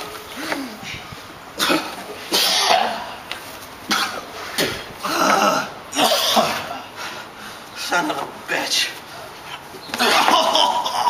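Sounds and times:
man coughing: 1.6 - 3.1, 5.5 - 6.8
man groaning: 5.0 - 6.9.

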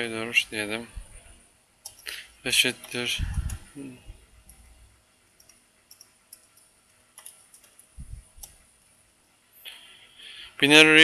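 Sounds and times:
keyboard keystrokes: 5.4 - 8.6.

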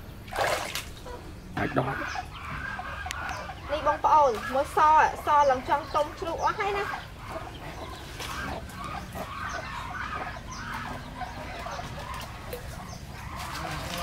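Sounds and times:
chickens clucking: 0.9 - 14.0
tree leaves rustling: 11.5 - 14.0.

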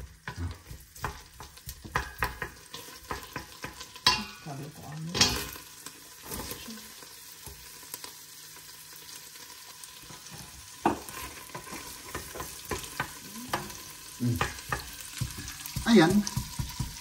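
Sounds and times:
food sizzling in butter: 0.0 - 17.0
spoon knocking against a pot: 0.2 - 4.4, 10.8 - 17.0.

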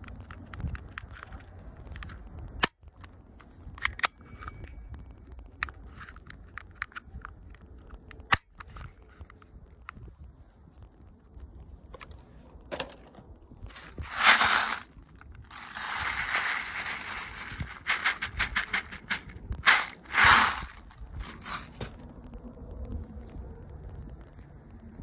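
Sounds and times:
loud rustling: 13.7 - 14.9, 15.5 - 21.9
pellets rattling in plastic container: 13.7 - 14.9, 15.5 - 21.8.

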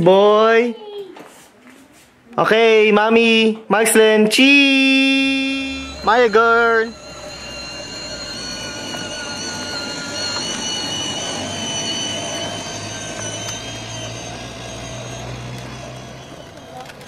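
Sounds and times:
electric motor whine: 4.8 - 17.0
plastic wheels rolling on concrete: 15.2 - 17.0.

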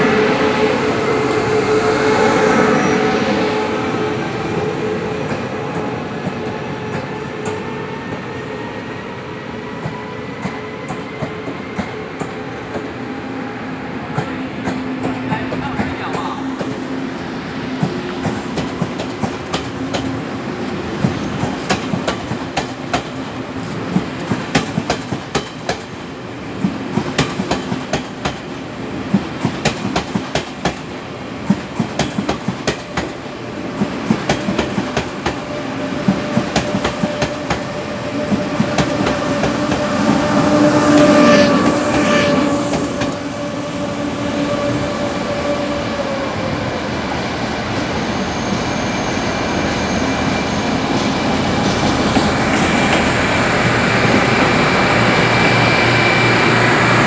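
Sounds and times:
diesel locomotive drone: 0.0 - 57.0
train wheels clicking over rail joints: 21.0 - 26.0, 26.6 - 28.5, 29.1 - 33.2.

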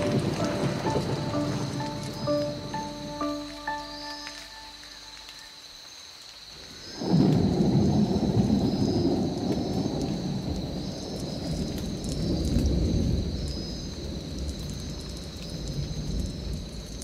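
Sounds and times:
rolling thunder: 0.0 - 3.9, 7.0 - 17.0
faint chirps: 0.0 - 6.0.

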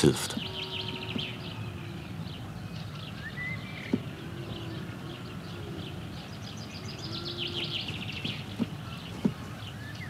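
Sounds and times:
sparrows chirping: 0.0 - 10.0.

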